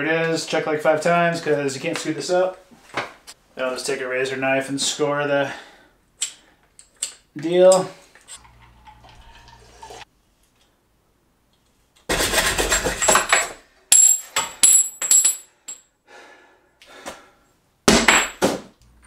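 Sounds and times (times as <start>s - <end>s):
light metallic clinks and jingle: 13.1s - 15.9s.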